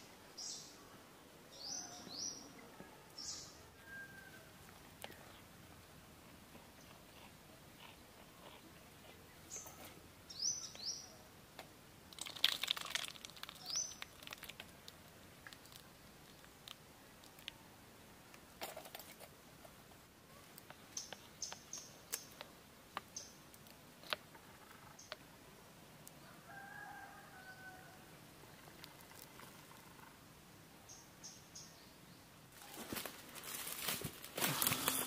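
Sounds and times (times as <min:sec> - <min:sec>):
faint rooster crow: 0:01.6 - 0:04.6, 0:26.2 - 0:28.2.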